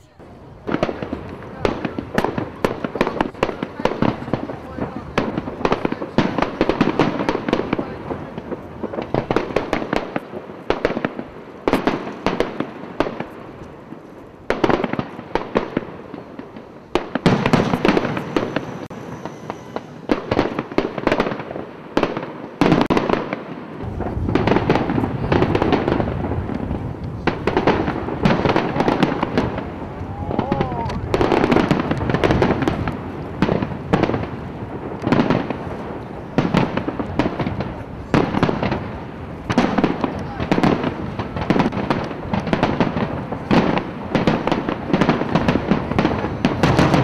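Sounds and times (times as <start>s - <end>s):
fireworks crackling: 0.0s - 47.0s
low rumble: 23.8s - 28.2s.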